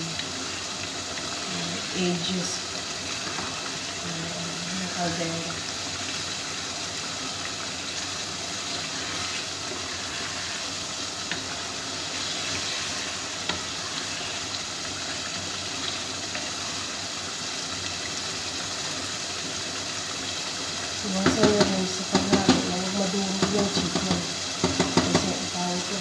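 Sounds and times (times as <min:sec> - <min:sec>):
pots hissing on gas stove: 0:00.0 - 0:26.0
wooden spoon stirring chicken: 0:06.1 - 0:17.2.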